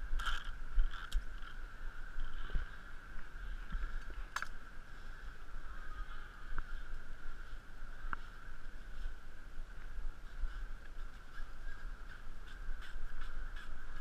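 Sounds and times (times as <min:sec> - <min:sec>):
climbing gear clicks: 0:00.0 - 0:02.5.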